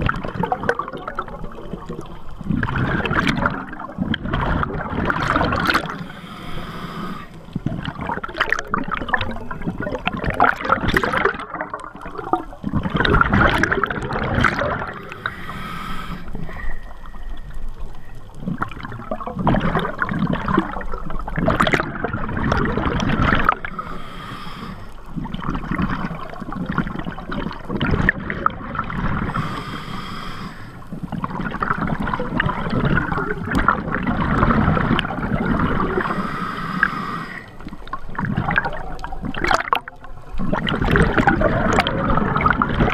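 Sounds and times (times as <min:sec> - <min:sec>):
rush of bubbles underwater: 0:00.0 - 0:42.9
diver breathing through regulator: 0:05.7 - 0:07.6, 0:14.8 - 0:17.6, 0:23.6 - 0:25.2, 0:29.2 - 0:31.1, 0:35.8 - 0:37.8.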